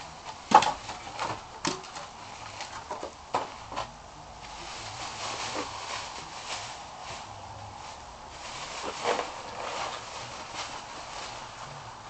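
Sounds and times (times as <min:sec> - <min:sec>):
plastic wrapping crinkling: 0:00.3 - 0:12.0.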